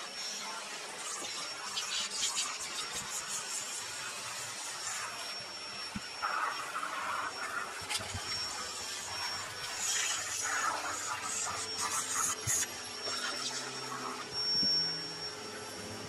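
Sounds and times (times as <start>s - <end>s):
vacuum cleaner running: 0.0s - 16.0s.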